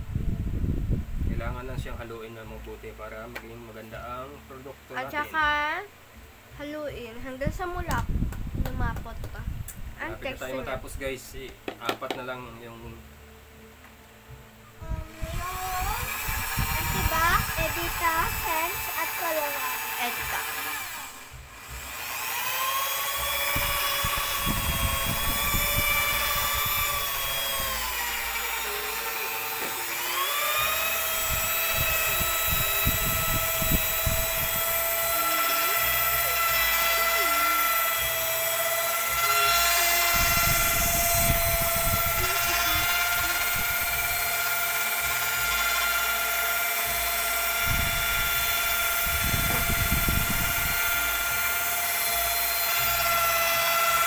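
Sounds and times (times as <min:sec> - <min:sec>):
electric drill mixing in bucket: 0:15.0 - 0:54.0.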